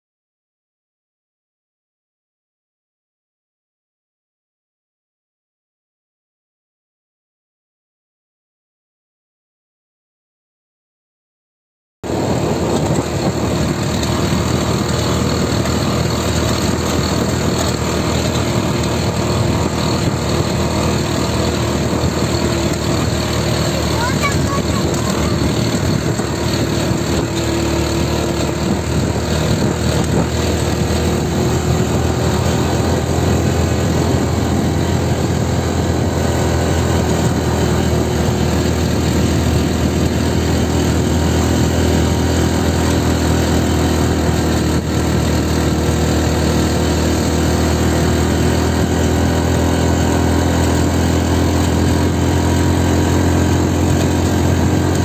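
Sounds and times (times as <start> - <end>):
small motorcycle engine running: 12.1 - 55.0.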